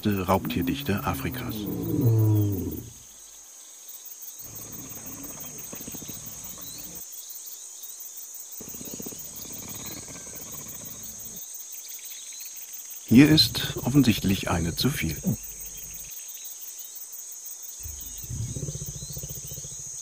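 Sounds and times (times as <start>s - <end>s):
lion growling: 0.0s - 3.0s, 4.4s - 7.0s, 8.6s - 11.4s, 13.1s - 16.1s, 17.8s - 20.0s
insects chirring: 0.0s - 20.0s.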